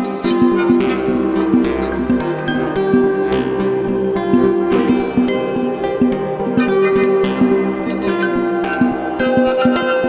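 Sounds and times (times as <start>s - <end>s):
plucked strings over held tones: 0.0s - 10.0s.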